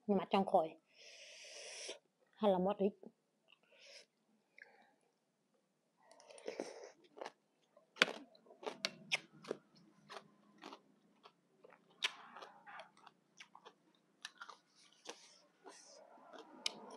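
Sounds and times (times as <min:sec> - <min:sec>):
chewing crunches: 0:06.1 - 0:07.4, 0:08.0 - 0:16.9.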